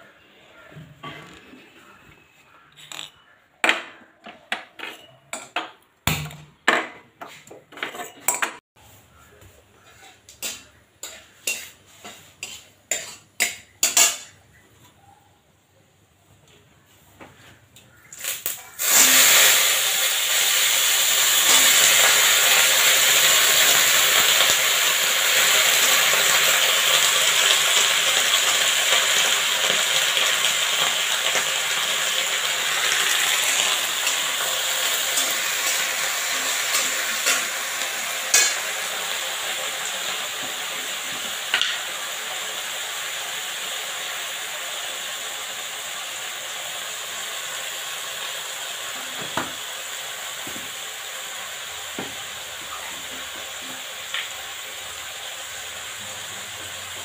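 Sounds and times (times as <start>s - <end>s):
vegetables sizzling in hot oil: 10.4s - 14.3s, 18.0s - 57.0s.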